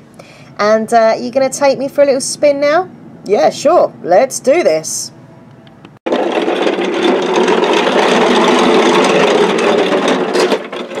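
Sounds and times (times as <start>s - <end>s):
plastic wheels rattling: 6.1s - 11.0s.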